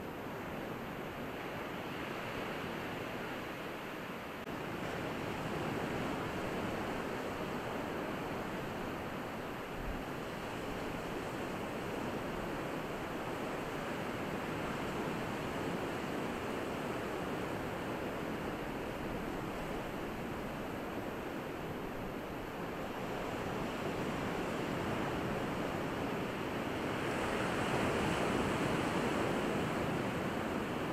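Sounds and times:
surf washing on beach: 0:04.5 - 0:30.9.

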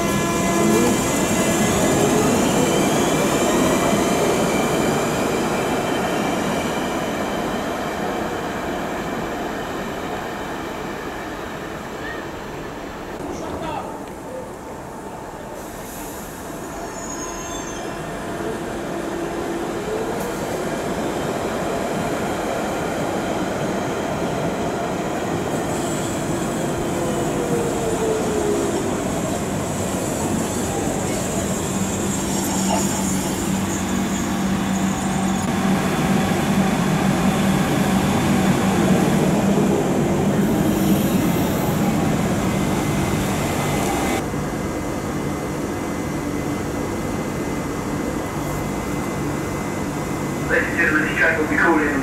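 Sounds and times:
train wheels squealing on rails: 0:00.0 - 0:12.5, 0:15.5 - 0:21.1, 0:23.4 - 0:35.5, 0:40.0 - 0:44.2
train electric hum: 0:00.0 - 0:52.0.

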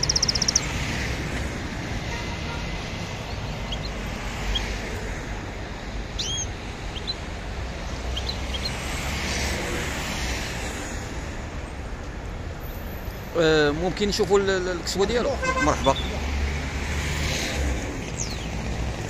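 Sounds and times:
songbirds chirping: 0:00.0 - 0:00.9, 0:06.0 - 0:09.0, 0:18.0 - 0:19.0
traffic rumble: 0:00.0 - 0:19.0.

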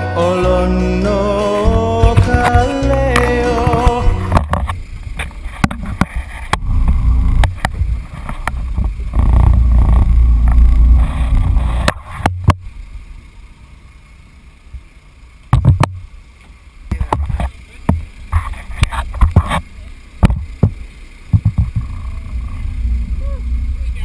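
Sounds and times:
sharp knocks: 0:01.7 - 0:07.9, 0:15.5 - 0:16.0, 0:20.2 - 0:22.0
wind buffeting microphone: 0:20.2 - 0:24.0.

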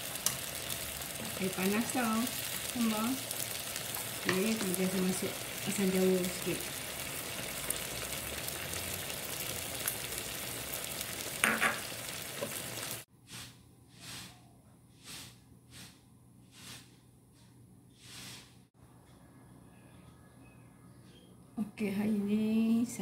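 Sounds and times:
broth bubbling in a pan: 0:00.0 - 0:13.1
soft puffs of noise: 0:13.2 - 0:18.6.

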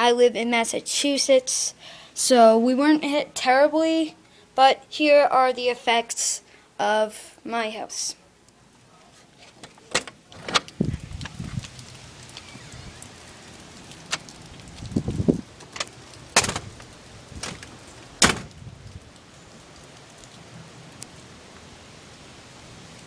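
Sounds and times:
door latch clicking: 0:15.8 - 0:16.7, 0:17.4 - 0:18.5
door knocks and thumps: 0:16.4 - 0:16.7, 0:17.4 - 0:18.5.

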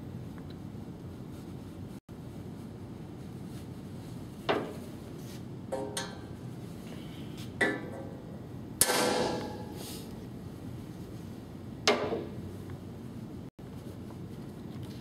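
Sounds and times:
hammer striking metal punch: 0:08.8 - 0:09.7.

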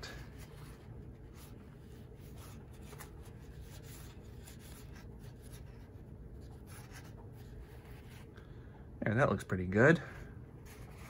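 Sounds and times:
paper towel rustling on plastic: 0:00.0 - 0:08.3
low steady hum: 0:00.0 - 0:11.0.

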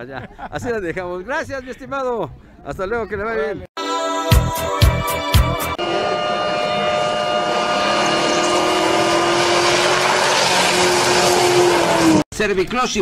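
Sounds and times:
truck engine revving high: 0:05.8 - 0:12.2.

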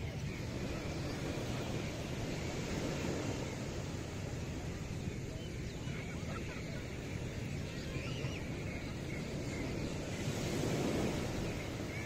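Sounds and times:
surf: 0:00.0 - 0:12.0
wind noise: 0:00.0 - 0:12.0.

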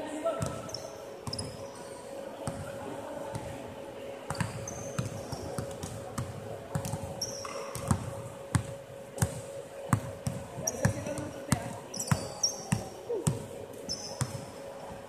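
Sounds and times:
shoes squeaking on floor: 0:00.4 - 0:02.1, 0:04.3 - 0:05.5, 0:10.6 - 0:14.4
basketballs bouncing on hardwood: 0:04.3 - 0:07.1, 0:07.8 - 0:13.4.

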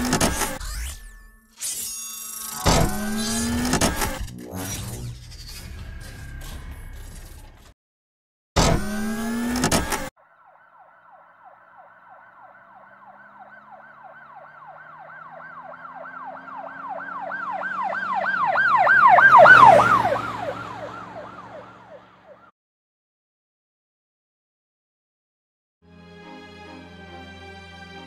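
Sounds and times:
sound effect with rising tones: 0:00.0 - 0:07.8
emergency siren yelping: 0:10.2 - 0:22.5.

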